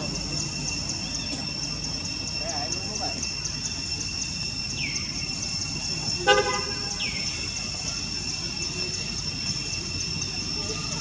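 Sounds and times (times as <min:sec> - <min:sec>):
high insect drone: 0:00.0 - 0:11.0
loud horn-like toot: 0:06.2 - 0:07.0.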